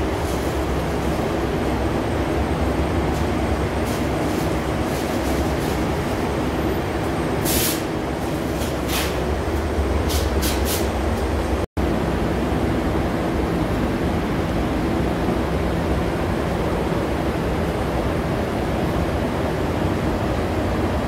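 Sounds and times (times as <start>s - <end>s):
fans rumbling: 0.0s - 21.0s
spray gun air hisses: 7.4s - 8.0s.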